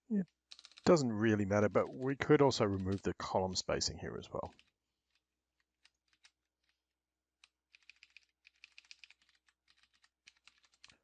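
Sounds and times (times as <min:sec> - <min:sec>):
faint keyboard typing: 0:00.1 - 0:11.0.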